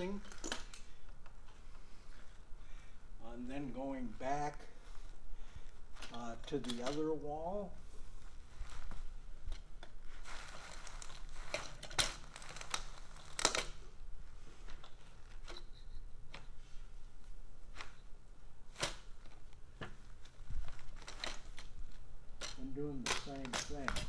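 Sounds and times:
carpet rustling and scraping: 5.9 - 24.0.

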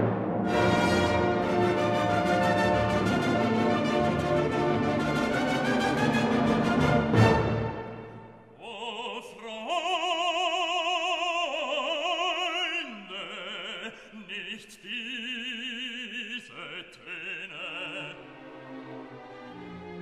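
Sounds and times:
operatic voice singing: 8.6 - 18.6.

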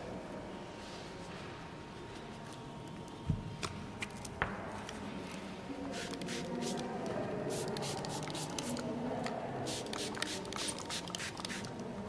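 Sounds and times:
paintbrush swishing on paper: 0.7 - 2.6.

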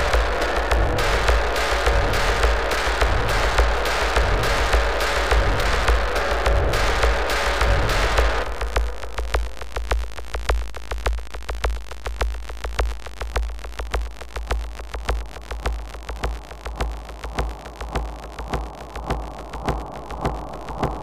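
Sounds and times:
low bass pulse: 0.0 - 11.0.

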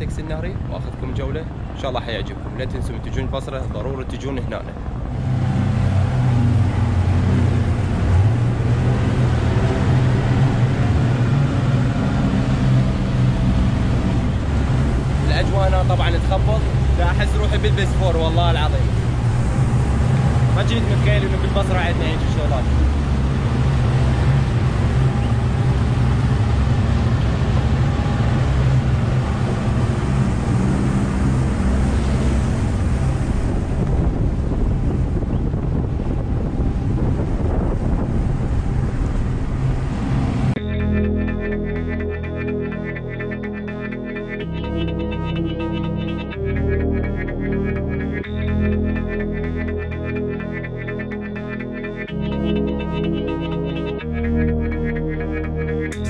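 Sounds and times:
churning wake rushing: 0.0 - 40.6
wind: 0.0 - 44.5
outboard motors droning: 0.0 - 56.0.

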